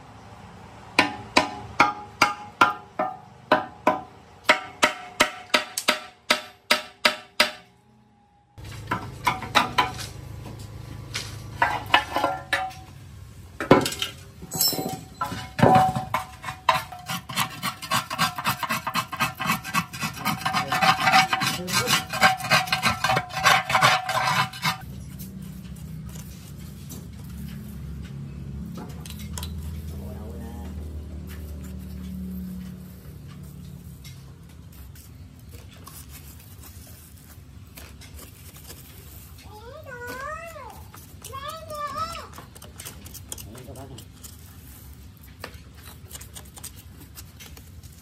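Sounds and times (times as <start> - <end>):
metal rod scraping rust: 13.8 - 24.9
rust flakes being scraped out: 15.9 - 27.8, 31.2 - 48.0.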